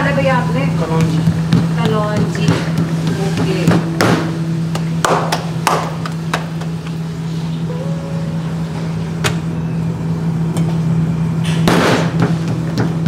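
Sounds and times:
low hum of kitchen equipment: 0.0s - 13.0s
dough patted by hand: 0.8s - 6.7s, 12.1s - 13.0s.

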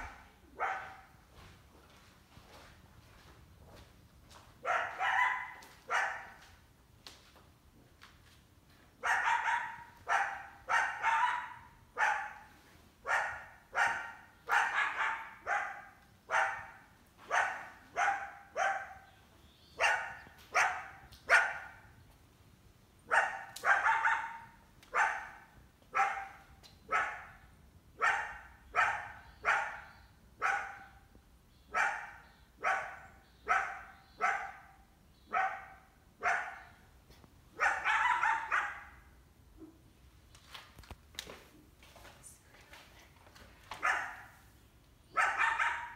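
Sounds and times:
coyote barking: 0.0s - 1.2s, 4.6s - 6.4s, 9.0s - 22.0s, 23.0s - 36.8s, 37.5s - 39.9s, 43.8s - 44.4s, 45.1s - 45.9s.

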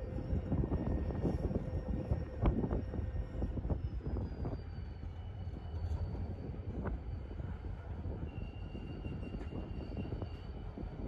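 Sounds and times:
freight train rumbling: 0.0s - 11.0s.

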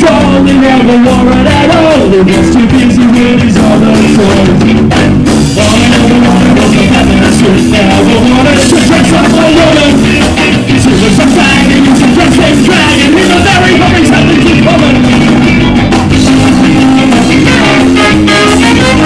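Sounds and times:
bass guitar: 0.0s - 19.0s
drum kit: 0.0s - 19.0s
person singing: 0.0s - 19.0s
ska band playing live: 0.0s - 19.0s
trombone: 16.2s - 19.0s.

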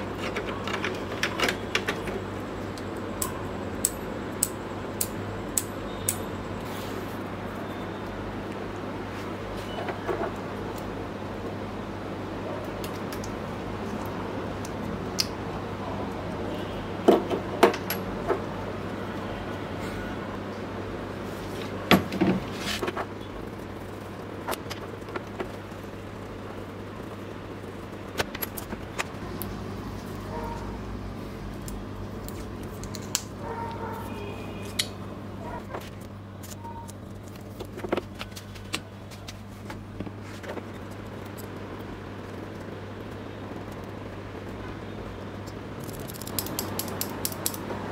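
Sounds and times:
sharp clicks and crackles: 0.0s - 6.3s, 12.6s - 15.4s, 22.7s - 30.7s, 31.5s - 33.8s, 35.6s - 44.6s, 45.3s - 47.8s
steady low hum: 0.0s - 47.9s
electrical tape being pulled: 45.8s - 47.6s.

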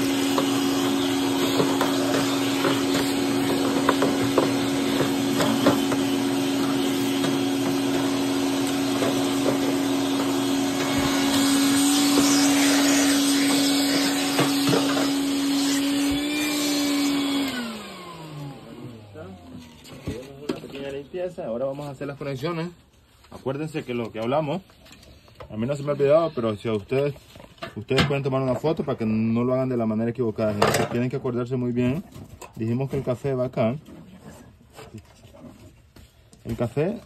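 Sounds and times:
vacuum motor spinning down: 0.0s - 19.9s
shop vacuum running: 0.0s - 22.0s.

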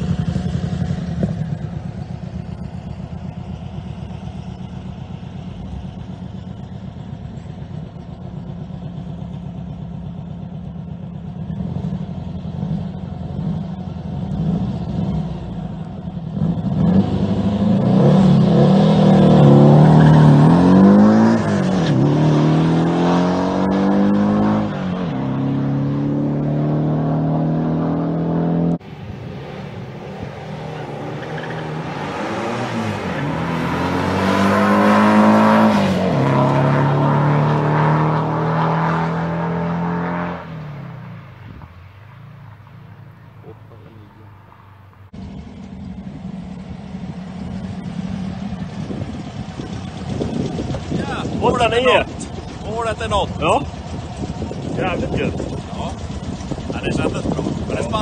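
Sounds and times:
engine accelerating through gears: 10.1s - 41.6s.

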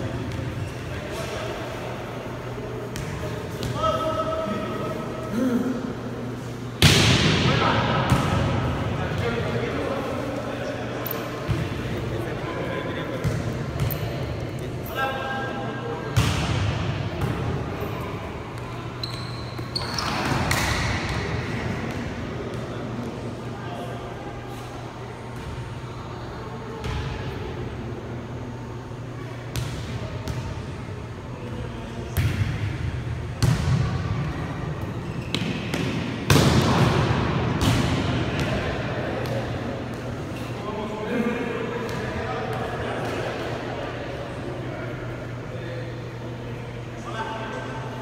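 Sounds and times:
volleyball slaps echoing: 6.8s - 9.4s, 16.1s - 17.7s, 20.0s - 22.8s, 32.1s - 34.3s, 35.2s - 40.2s
shoes squeaking on hardwood court: 18.9s - 20.7s, 35.0s - 35.7s.

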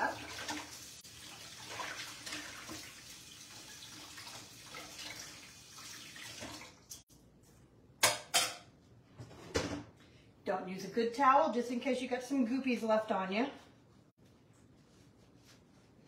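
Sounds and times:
tap water running: 0.0s - 7.1s.

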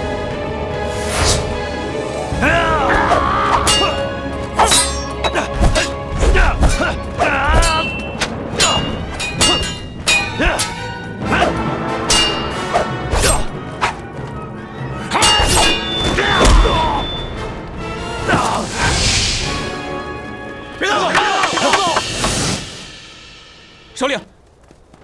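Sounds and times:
dramatic film score: 0.0s - 24.9s
shouts of effort: 2.4s - 3.8s.

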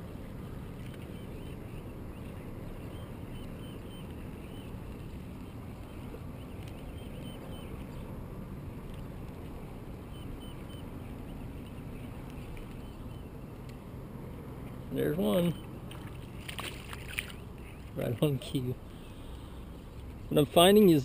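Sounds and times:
low rumble of wind and water: 0.0s - 21.0s
faint bird chirps: 0.8s - 4.8s, 5.8s - 8.1s, 10.1s - 13.6s, 15.2s - 19.6s.

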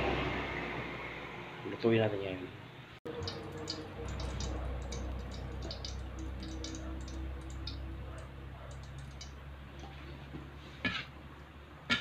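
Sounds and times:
steady low hum: 3.1s - 11.8s
oil crackling and popping: 3.2s - 7.8s.

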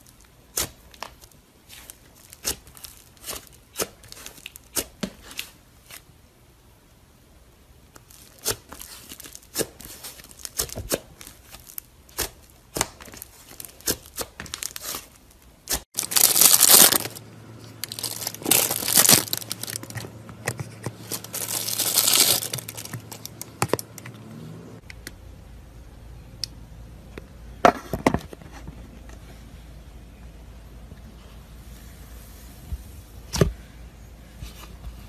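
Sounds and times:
slime crackling and tearing: 8.1s - 17.2s, 17.8s - 20.0s, 21.0s - 23.4s.

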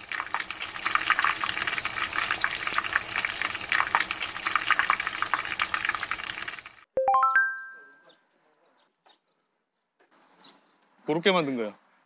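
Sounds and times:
oil sizzling in a pot: 0.0s - 6.9s.

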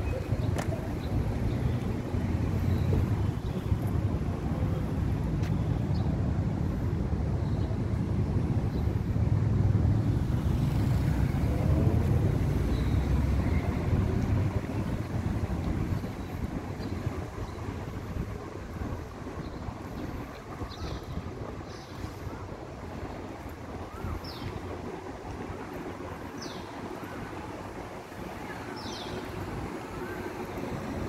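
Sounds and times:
wind buffeting microphone: 0.0s - 31.0s
faint open-air background: 15.8s - 31.0s.

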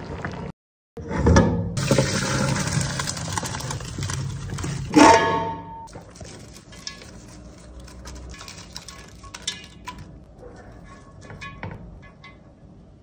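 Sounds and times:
metal spoon ladling rice into pot: 5.9s - 12.4s.

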